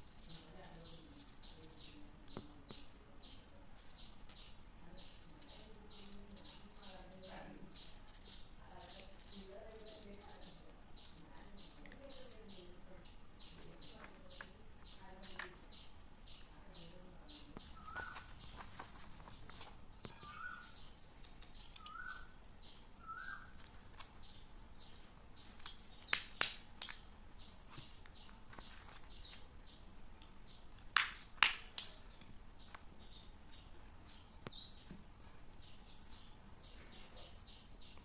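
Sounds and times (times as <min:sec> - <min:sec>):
bird chirping: 0:00.0 - 0:38.0
paper rustling: 0:17.7 - 0:19.8, 0:27.5 - 0:29.5.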